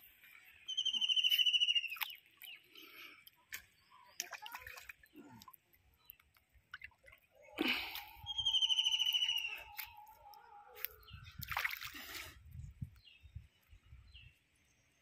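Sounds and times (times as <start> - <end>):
high trilling whistle: 8.2 - 9.8
water splash: 11.4 - 12.1.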